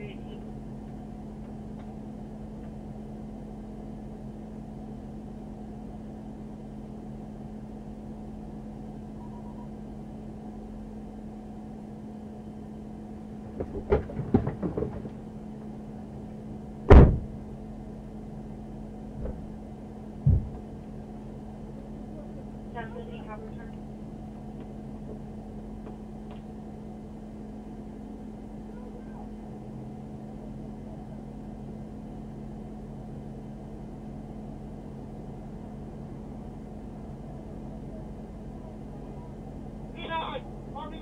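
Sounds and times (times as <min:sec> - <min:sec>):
car engine idling hum: 0:00.0 - 0:41.0
knocks and thuds on car hood: 0:13.5 - 0:15.2, 0:16.9 - 0:17.4, 0:19.2 - 0:19.5, 0:20.2 - 0:20.7
loud sharp bang: 0:16.9 - 0:17.3.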